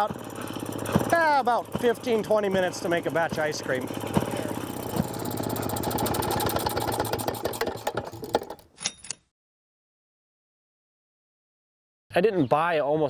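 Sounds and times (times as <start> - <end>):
small two-stroke engine running: 0.0 - 8.7.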